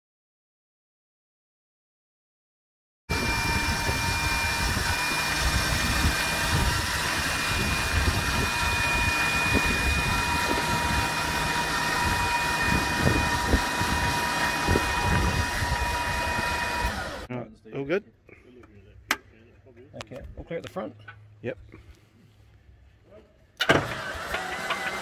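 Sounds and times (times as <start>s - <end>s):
engine machine whine and rumble: 3.1s - 17.3s, 23.6s - 25.0s.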